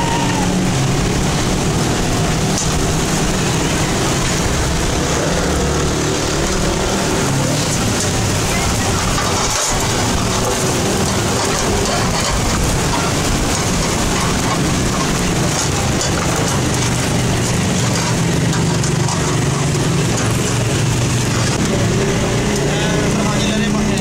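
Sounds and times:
street noise hiss: 0:00.0 - 0:24.0
faint voices: 0:07.3 - 0:20.2.

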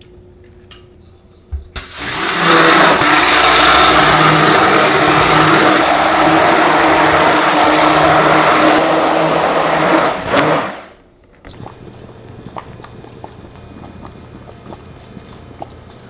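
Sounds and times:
immersion blender running: 0:01.8 - 0:11.0.

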